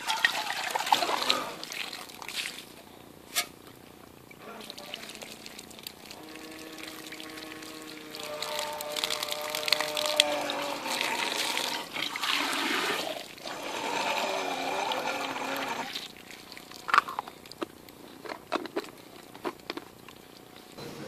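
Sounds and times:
water splashing into container: 0.0s - 2.8s, 4.3s - 17.8s.

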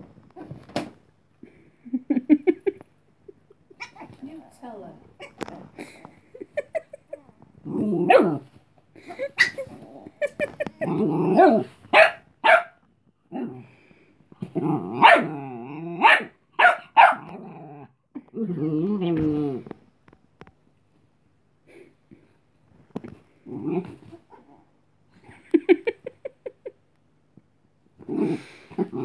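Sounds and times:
puppy growling and yapping: 3.7s - 4.2s, 7.6s - 8.6s, 9.2s - 11.8s, 14.4s - 19.7s, 23.4s - 24.8s, 28.0s - 29.0s.

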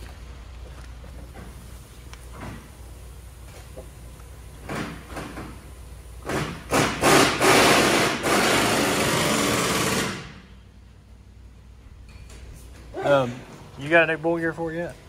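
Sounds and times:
power tool running: 6.2s - 10.5s.

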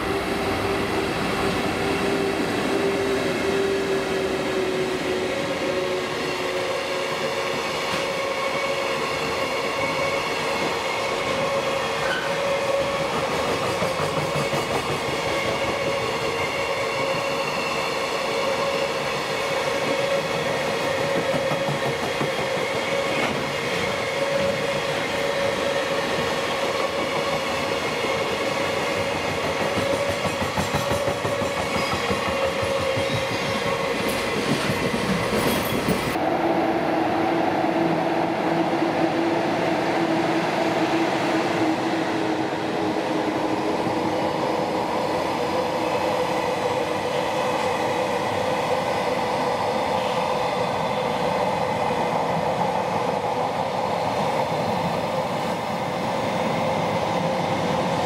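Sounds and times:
train wheels rumbling on rails: 0.0s - 36.2s.

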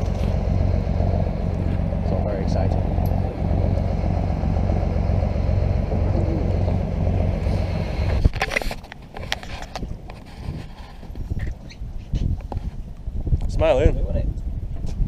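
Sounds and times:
boat engine rumbling: 0.0s - 14.8s.

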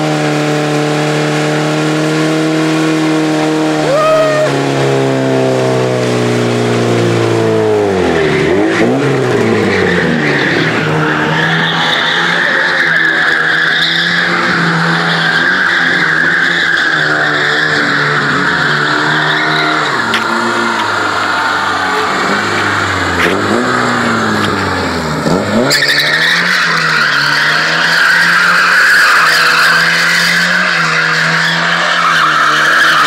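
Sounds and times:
car engine at high revs: 0.0s - 33.0s
tyres squealing: 3.8s - 4.5s, 8.8s - 33.0s.

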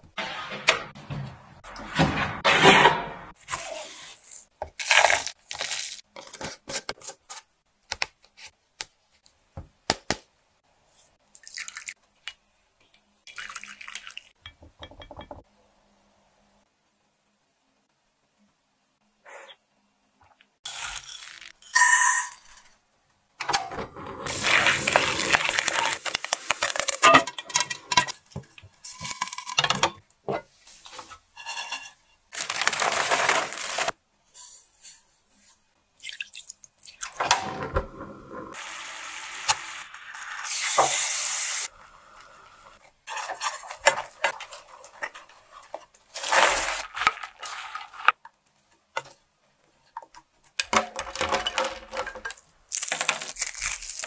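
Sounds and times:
wooden spoon stirring popcorn: 24.3s - 29.6s, 43.0s - 48.2s.

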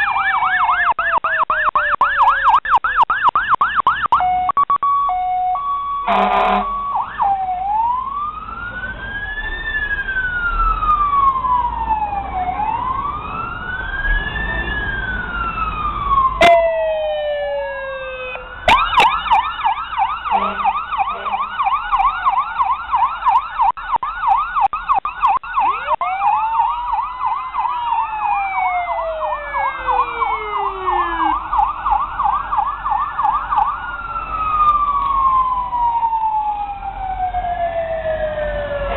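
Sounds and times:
fast yelping siren warble: 0.0s - 6.1s, 16.2s - 36.7s
fire truck siren wailing: 0.0s - 38.9s.

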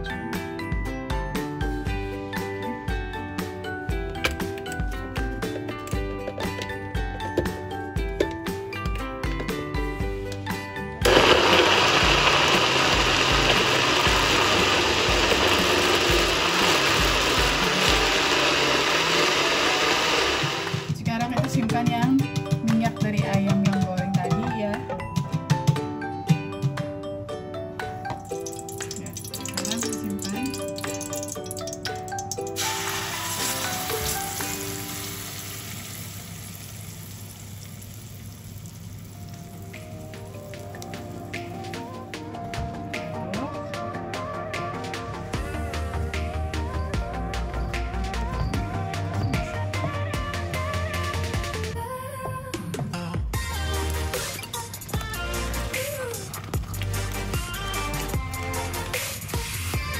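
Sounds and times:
food sizzling in hot oil: 11.0s - 20.9s, 28.3s - 41.2s
electric blender running: 11.0s - 21.0s, 32.6s - 37.2s.

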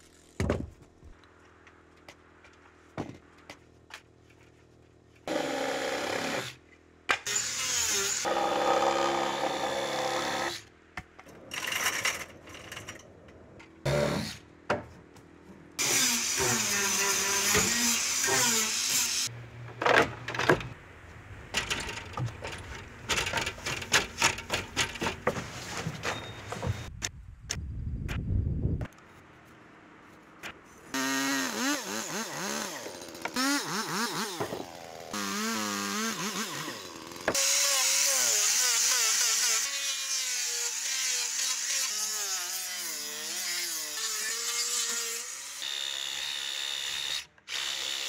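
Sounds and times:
power tools running: 31.0s - 39.7s.

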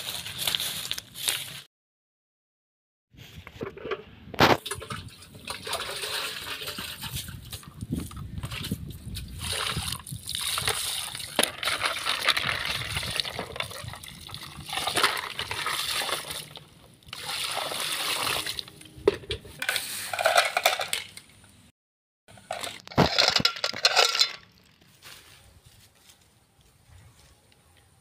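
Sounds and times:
water splashing from bucket: 4.6s - 7.8s, 8.4s - 18.9s
water poured into pot: 9.4s - 18.8s.

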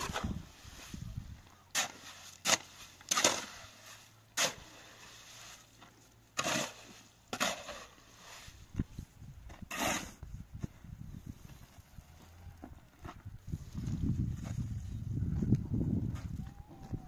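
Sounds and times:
shovel scraping gravel: 0.0s - 10.5s.

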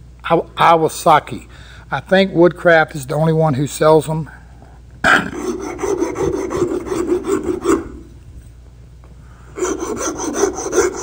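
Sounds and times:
rasp cutting wooden board: 5.3s - 7.9s, 9.6s - 11.0s.

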